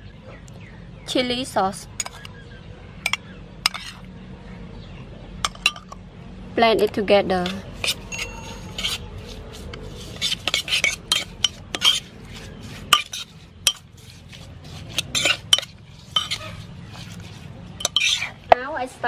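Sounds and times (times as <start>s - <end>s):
metal spoon scraping ceramic pot: 2.0s - 2.3s, 3.1s - 4.1s, 5.5s - 6.0s, 7.4s - 18.5s.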